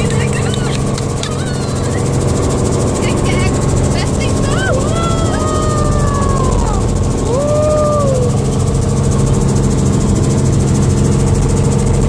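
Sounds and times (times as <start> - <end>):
rotor blades chopping: 0.0 - 7.3
helicopter engine drone: 0.0 - 12.0.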